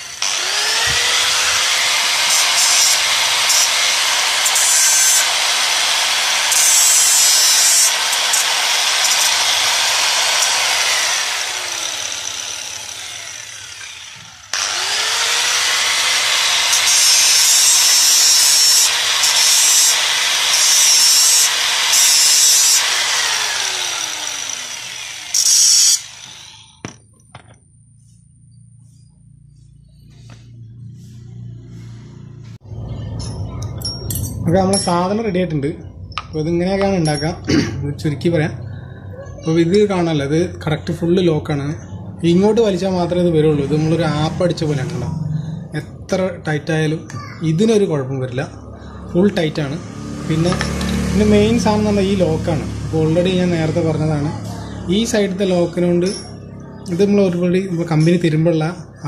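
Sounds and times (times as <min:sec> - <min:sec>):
grinder disc screeching on metal: 0:00.0 - 0:26.9
angle grinder motor whine: 0:00.0 - 0:27.6, 0:42.1 - 0:45.8, 0:48.4 - 0:57.6.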